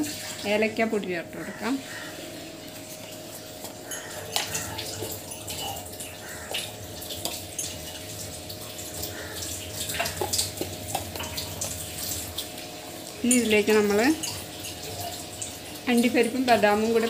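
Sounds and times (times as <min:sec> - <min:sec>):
milk bubbling in a saucepan: 0:00.0 - 0:17.0
spatula scraping a pan: 0:03.3 - 0:08.2.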